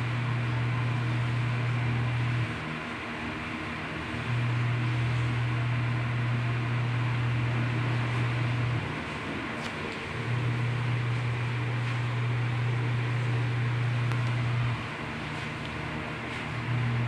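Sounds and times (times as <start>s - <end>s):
low motor hum: 0.0s - 17.0s.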